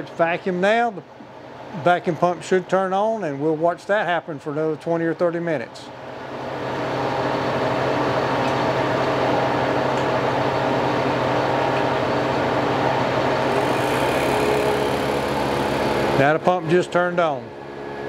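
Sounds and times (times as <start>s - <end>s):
vacuum pump humming: 6.2s - 18.0s.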